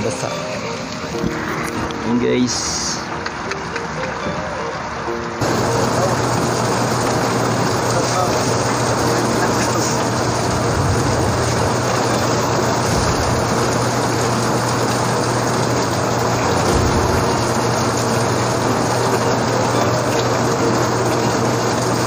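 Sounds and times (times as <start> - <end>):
heavy rain: 5.3 - 22.0
low steady hum: 8.9 - 20.5.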